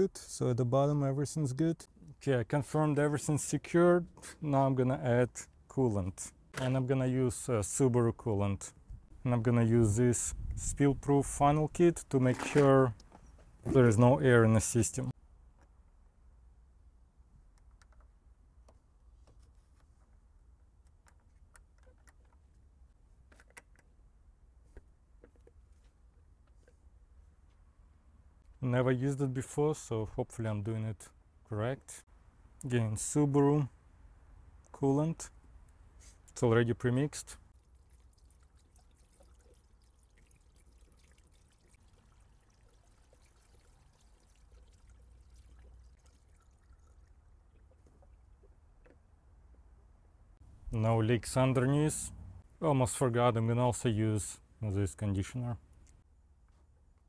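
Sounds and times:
liquid pouring into funnel: 37.6 - 48.6.

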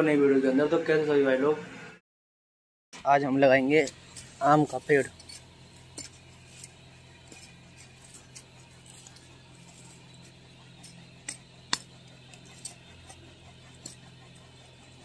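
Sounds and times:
hoe blade clinking on stony soil: 3.6 - 15.0.

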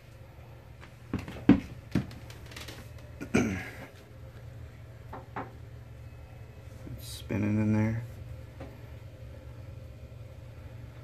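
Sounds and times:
low steady hum: 0.0 - 11.0
man clearing throat: 3.2 - 3.9.

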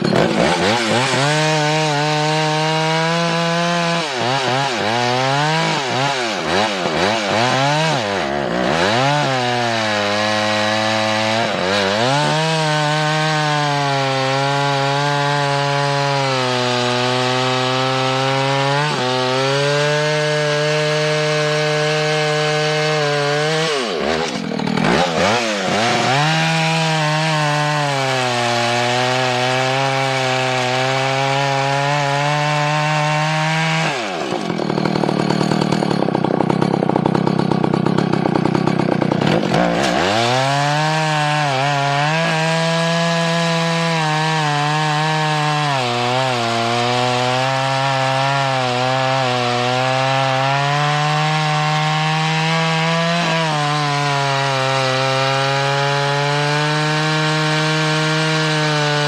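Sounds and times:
chainsaw cutting log: 0.0 - 59.0.

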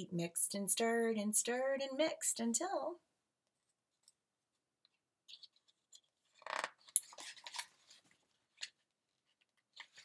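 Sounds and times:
book pages rustling: 5.2 - 10.0.

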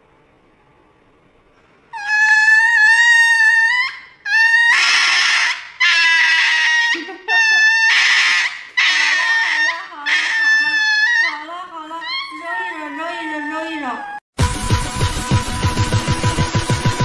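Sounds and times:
puppy screaming: 1.9 - 14.3.

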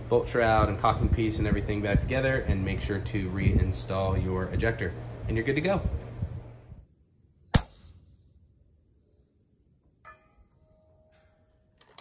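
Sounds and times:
faint held ringing tone: 6.4 - 11.8
sharp ringing hit: 7.5 - 8.0, 10.0 - 11.7.

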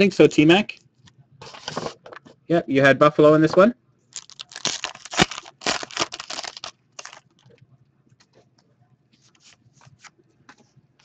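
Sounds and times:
card wrappers crinkling: 4.2 - 7.5.

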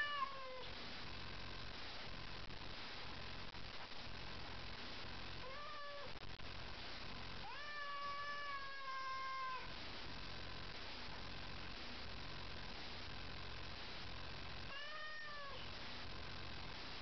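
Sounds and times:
cat yowling: 0.0 - 0.6, 5.4 - 6.2, 7.4 - 9.7, 14.7 - 15.6.

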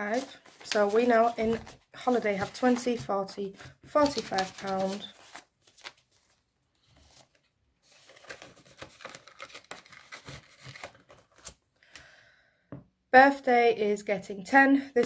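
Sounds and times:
paper and plastic rustling: 0.0 - 11.6.

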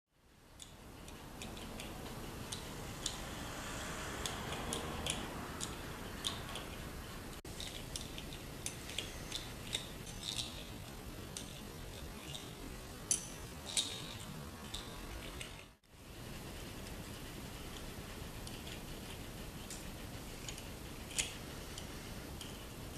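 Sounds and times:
steady hiss: 0.2 - 22.9
metal gears clicking: 4.2 - 6.8, 7.5 - 15.8.

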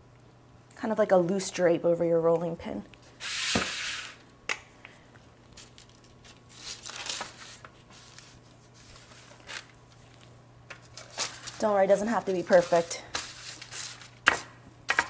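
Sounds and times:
parchment paper rustling: 5.5 - 15.0.

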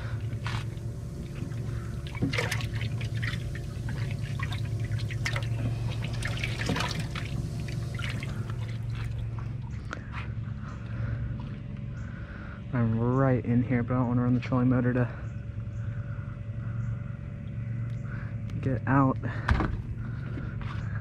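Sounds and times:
water splashing in bait well: 0.0 - 10.0
steady low hum: 0.0 - 21.0.

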